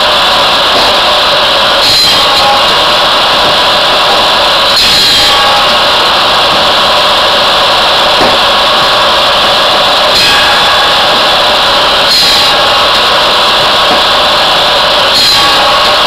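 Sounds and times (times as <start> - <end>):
circular saw running: 0.0 - 16.0
saw blade cutting wood: 0.0 - 16.0.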